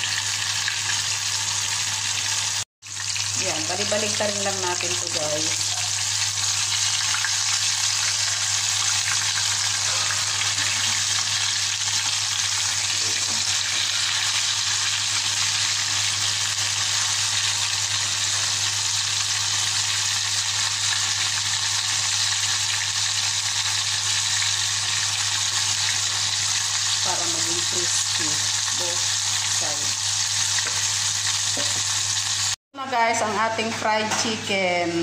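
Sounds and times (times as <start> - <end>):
chicken deep-frying in oil: 0.0 - 32.6.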